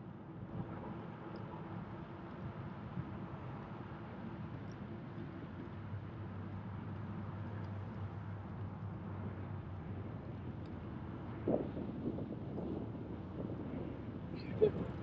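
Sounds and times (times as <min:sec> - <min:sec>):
rumbling wind: 0:11.1 - 0:15.0.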